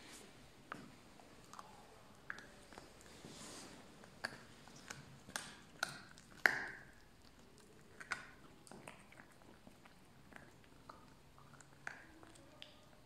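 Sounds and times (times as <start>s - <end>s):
puppy gnawing on bone: 0.7s - 3.2s, 3.8s - 13.0s.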